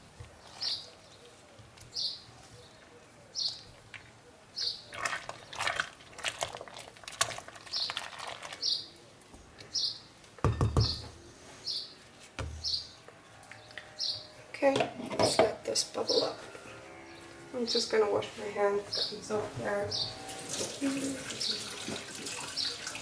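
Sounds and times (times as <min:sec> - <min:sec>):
soap bubbling: 0:04.9 - 0:08.6
knock against a pot: 0:10.4 - 0:11.0.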